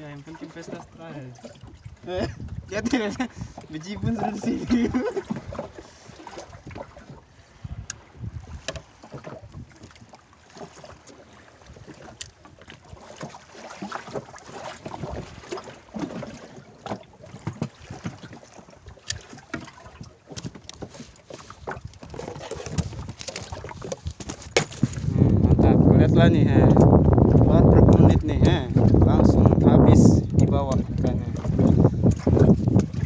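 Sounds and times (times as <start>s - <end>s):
water lapping against hull: 0.0s - 33.0s
wind buffeting microphone: 1.6s - 10.1s, 14.7s - 16.4s, 21.5s - 33.0s.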